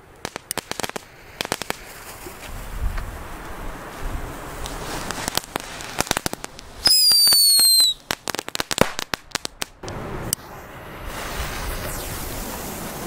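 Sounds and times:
firecracker crackling pops: 0.0 - 10.4
firecracker bangs: 5.1 - 9.8
firework whistle: 6.8 - 9.1, 10.4 - 13.0.

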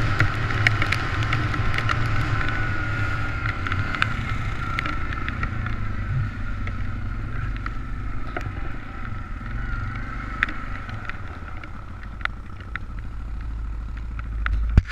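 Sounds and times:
quad engine running: 0.0 - 14.9
sharp clicks and knocks: 10.4 - 14.9.

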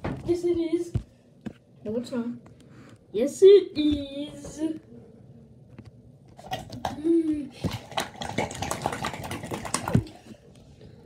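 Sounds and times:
rubber puppet scrubbing sink: 6.4 - 10.5.

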